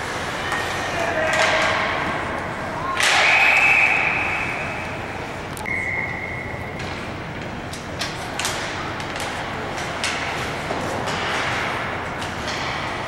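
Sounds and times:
arena crowd noise: 0.0 - 13.0
referee's whistle blasts: 3.0 - 5.0, 5.6 - 6.8.

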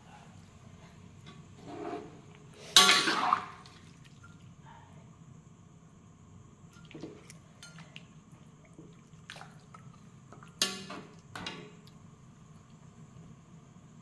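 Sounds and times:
soft wet stirring: 6.7 - 13.2.

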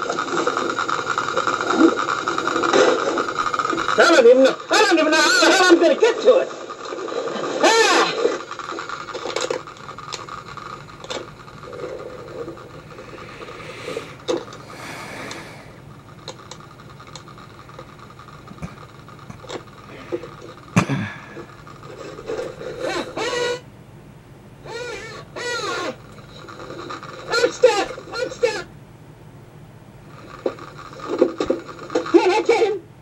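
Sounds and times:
rubbing and scraping: 21.4 - 23.6.

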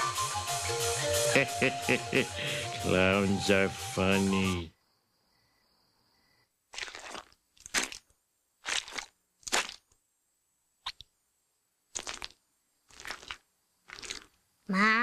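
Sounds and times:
wet crunching and squishing: 6.7 - 10.0, 11.9 - 14.4.

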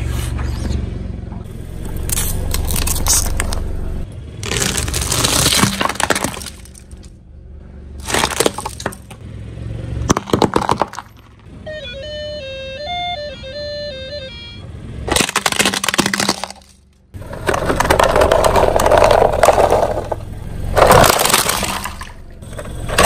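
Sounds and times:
tyres crushing crunchy objects: 2.0 - 3.7, 4.4 - 7.2, 8.0 - 9.2, 10.0 - 11.5, 15.1 - 23.0
electronic jingle melody: 11.7 - 14.6.

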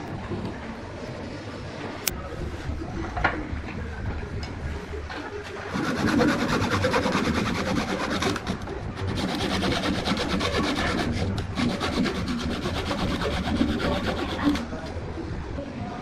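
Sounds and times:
saw blade scraping wood: 5.7 - 14.8.

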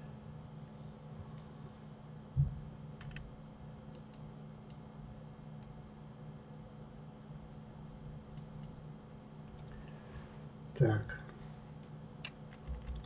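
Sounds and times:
low steady hum: 0.0 - 13.0
computer mouse clicks: 3.9 - 4.8, 8.3 - 8.8, 12.2 - 13.0.

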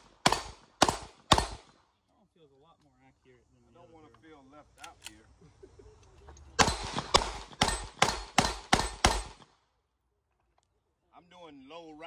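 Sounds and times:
handgun shots echoing: 0.0 - 1.7, 6.6 - 9.4.

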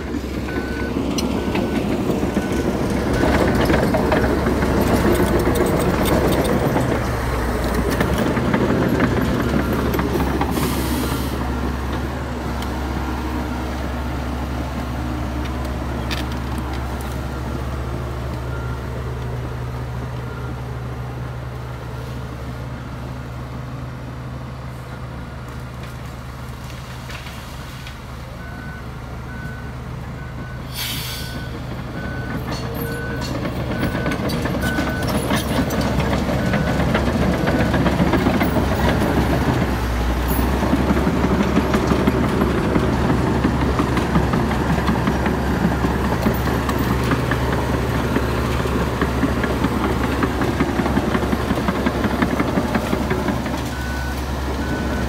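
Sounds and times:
heavy diesel engine running: 0.0 - 55.0
reversing alarm beeping: 28.4 - 39.6, 53.6 - 55.0
short air hisses: 30.7 - 31.4.

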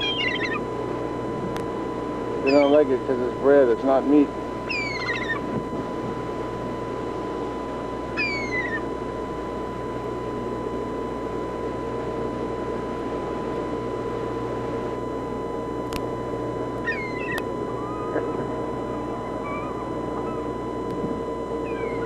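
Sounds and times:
seagull calls: 0.0 - 0.7, 2.5 - 2.9, 4.6 - 5.5, 8.1 - 8.9, 16.8 - 20.7, 21.6 - 22.0.

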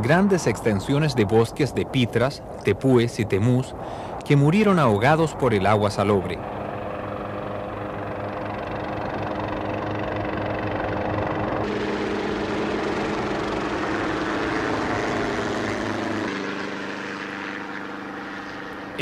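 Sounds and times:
helicopter engine and rotor: 5.1 - 19.0.

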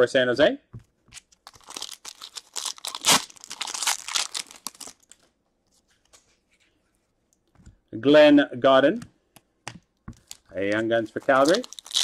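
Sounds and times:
foil wrapper crinkling: 1.2 - 5.3, 10.2 - 12.0.

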